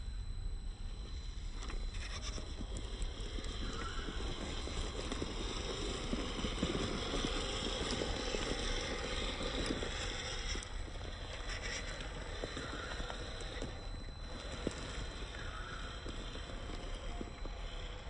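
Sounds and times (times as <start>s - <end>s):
toy car electric motor whirring: 1.0s - 18.0s
tyres crackling through leaves: 1.9s - 18.0s.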